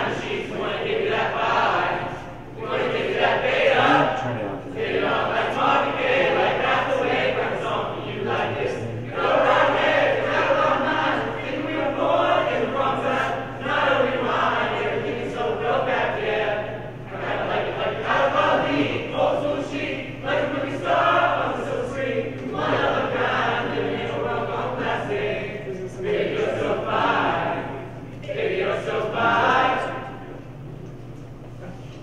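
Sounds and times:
small choir singing: 0.0 - 30.5
low hum: 3.8 - 10.6.

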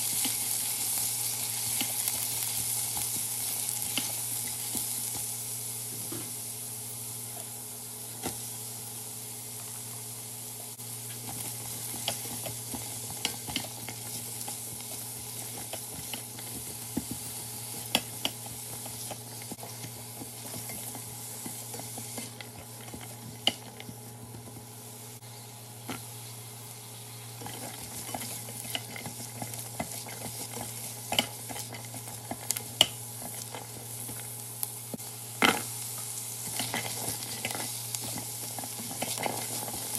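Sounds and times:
oil sizzling in a pot: 0.0 - 39.9
spatula scraping and clicking on pot: 11.1 - 24.4, 27.4 - 34.3, 36.4 - 39.9.

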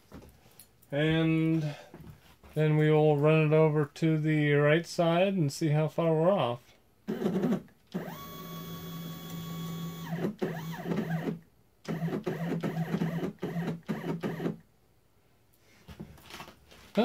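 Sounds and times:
stepper motor whine: 8.0 - 11.3.

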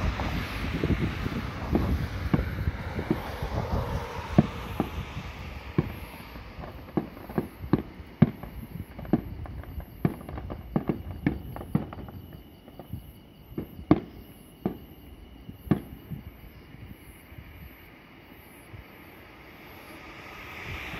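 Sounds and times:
distant fireworks bangs and pops: 0.0 - 16.4.

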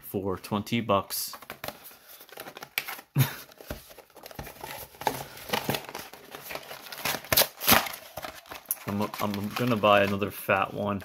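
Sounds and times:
packaging rustles and clicks: 1.3 - 10.3
box flap scraping and crinkling: 1.4 - 10.2.

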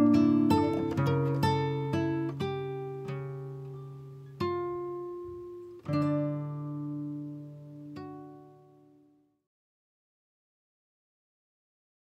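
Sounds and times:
plucked guitar notes: 0.0 - 9.0.

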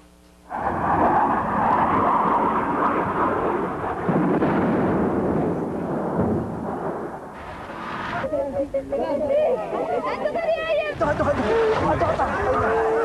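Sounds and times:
explosions and bombardment roar: 0.5 - 8.3.

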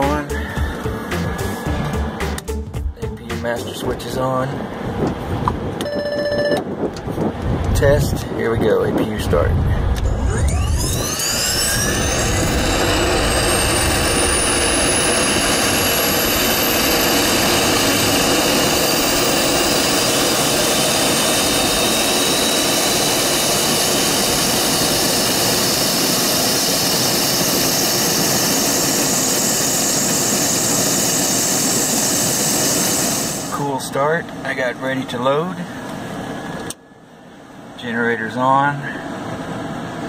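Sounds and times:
turbine whine spooling up: 0.0 - 2.6, 9.0 - 34.2.

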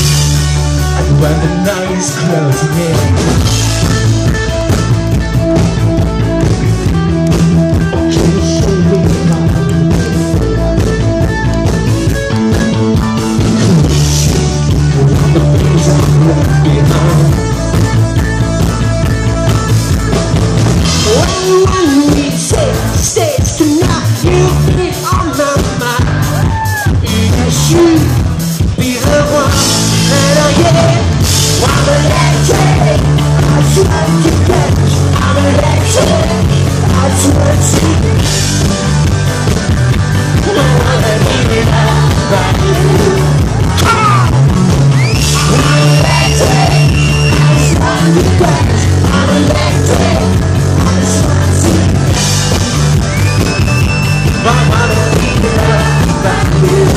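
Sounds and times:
live rock band playing: 0.0 - 56.9
person singing: 0.8 - 3.8, 7.2 - 10.2, 12.5 - 17.6, 20.9 - 38.5, 40.3 - 52.3, 54.2 - 56.9.

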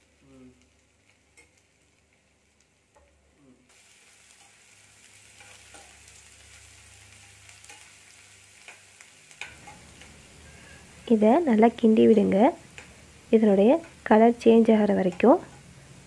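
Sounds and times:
food sizzling in a pan: 0.0 - 16.0
spatula clicking against pan: 8.6 - 8.8, 12.7 - 13.0, 13.8 - 14.0, 15.0 - 15.6.

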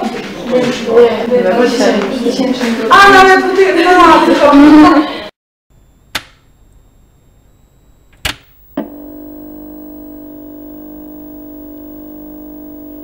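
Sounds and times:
steady electronic hum: 7.6 - 13.0.

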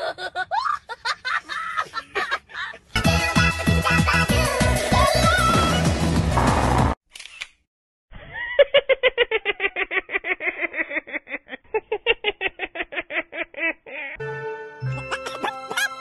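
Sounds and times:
high-pitched cartoon laugh: 0.0 - 2.9, 3.6 - 4.5, 8.2 - 14.2, 14.9 - 16.0
music: 3.0 - 7.0, 14.2 - 16.0.

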